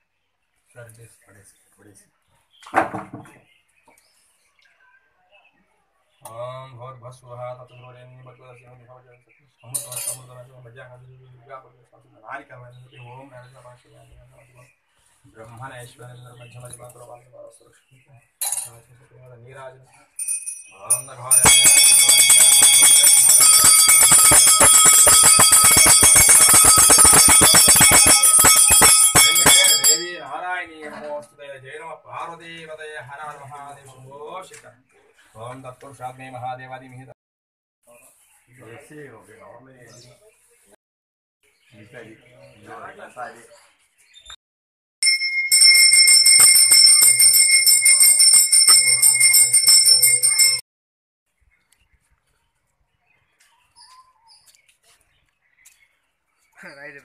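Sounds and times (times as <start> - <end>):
brass hand bell ringing rapidly: 20.2 - 30.2, 45.0 - 50.6.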